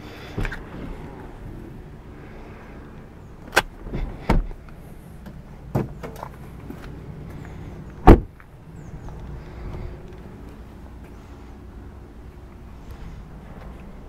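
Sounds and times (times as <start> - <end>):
car door shutting thud: 8.0 - 8.3.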